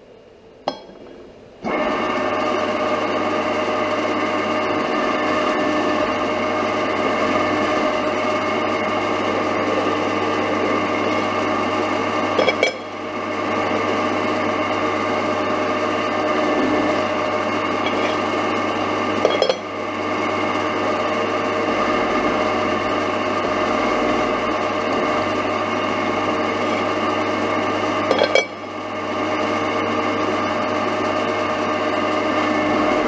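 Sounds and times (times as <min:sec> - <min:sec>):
milling machine whine: 0:00.0 - 0:33.0.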